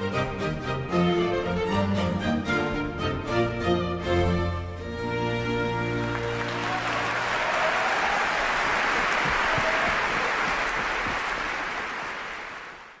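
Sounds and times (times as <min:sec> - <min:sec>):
orchestra playing: 0:00.0 - 0:07.4
audience applauding: 0:05.9 - 0:13.0.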